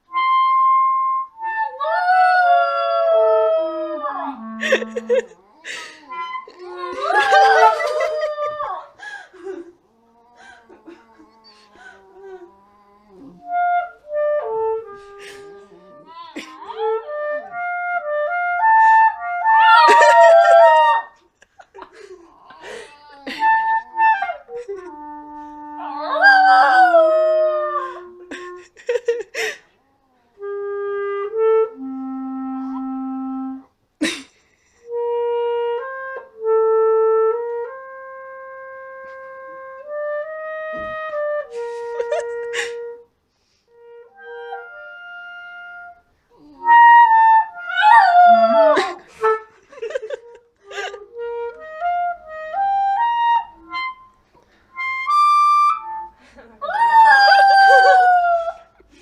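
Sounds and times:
clarinet playing slow tune: 0.0 - 8.8, 9.4 - 21.2, 22.6 - 29.1, 30.0 - 33.8, 34.8 - 58.6
dog howling: 5.6 - 9.0, 19.5 - 21.2, 25.8 - 28.1, 47.6 - 49.0, 56.7 - 58.7.

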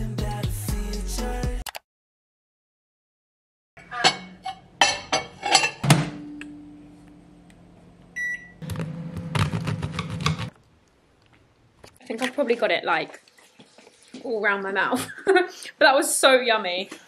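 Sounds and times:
microwave oven humming: 6.2 - 10.1
microwave keypad beep: 8.2 - 8.6.

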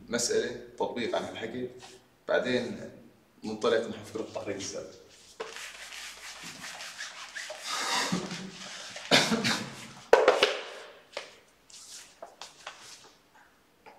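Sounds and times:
eraser wiping whiteboard: 5.1 - 9.0.

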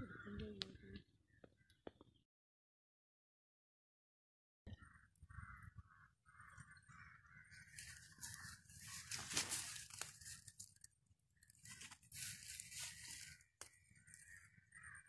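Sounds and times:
dry leaves and twigs crunching: 7.4 - 15.0.

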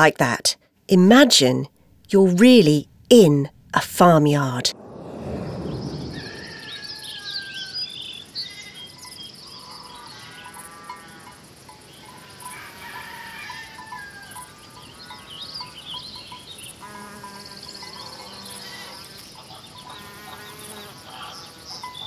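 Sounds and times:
high insect trill: 4.9 - 22.0
small birds chirping: 5.5 - 10.6, 14.4 - 22.0.

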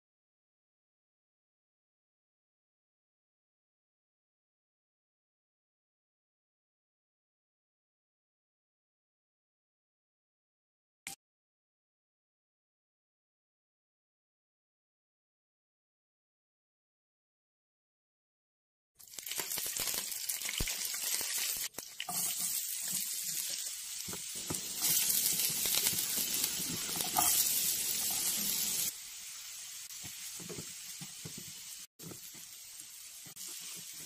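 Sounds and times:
vegetables sizzling in oil: 19.0 - 34.0
spoon scraping a pan: 22.0 - 28.9.

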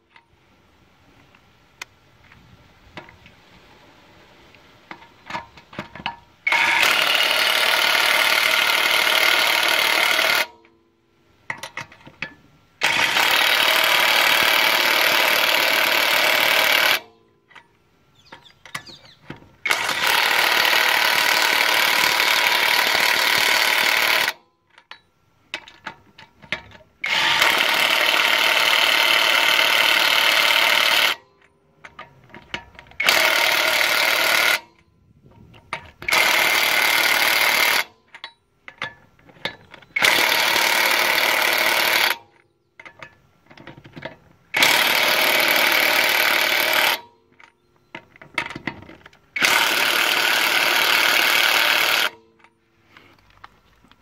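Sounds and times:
impact wrench hammering lug nuts: 4.9 - 10.7, 11.5 - 17.1, 25.0 - 31.2, 32.3 - 34.8, 35.8 - 47.2, 48.0 - 52.4.

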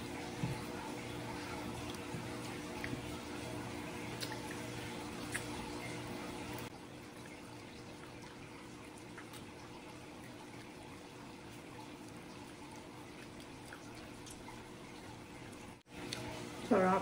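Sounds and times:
wet chewing and sucking: 4.0 - 5.8.

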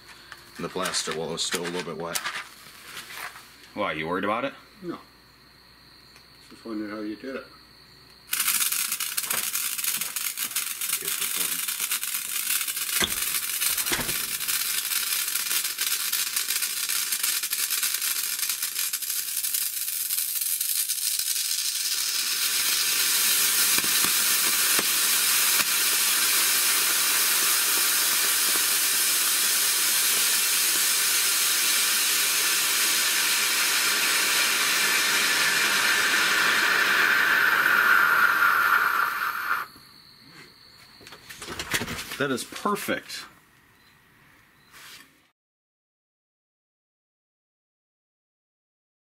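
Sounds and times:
rocket motor hissing and crackling: 8.3 - 39.7.

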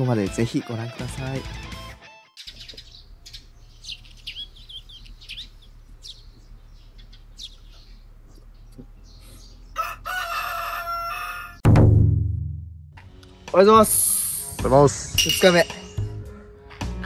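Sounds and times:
small birds chirping: 2.4 - 11.1
rooster crowing: 9.7 - 11.6
sudden loud hit: 11.6 - 12.9.

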